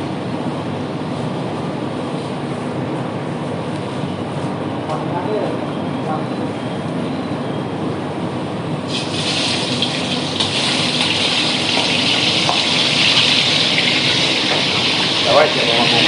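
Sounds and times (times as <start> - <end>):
water running from tap: 8.9 - 16.0.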